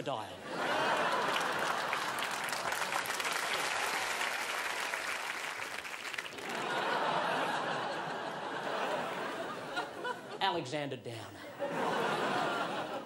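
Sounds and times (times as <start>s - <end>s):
audience laughing: 0.4s - 4.2s, 6.3s - 10.4s, 11.4s - 13.0s
audience clapping: 0.6s - 9.6s.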